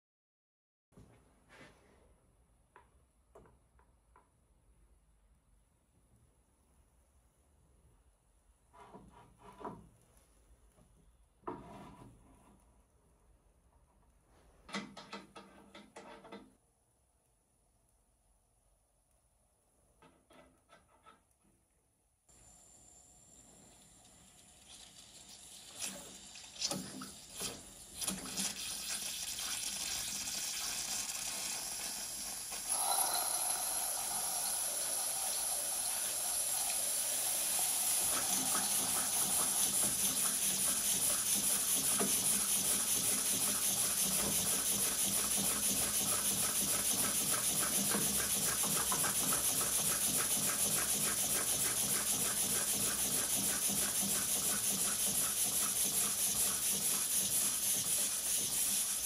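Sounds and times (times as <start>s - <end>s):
steam hissing: 28.6s - 59.0s
steam engine exhaust beating: 32.6s - 59.0s.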